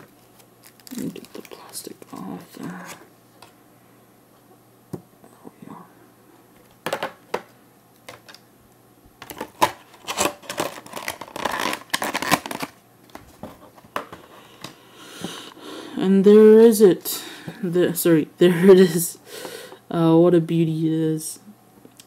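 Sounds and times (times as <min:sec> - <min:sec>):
plastic packaging crinkling: 0:00.0 - 0:03.1, 0:09.2 - 0:14.2.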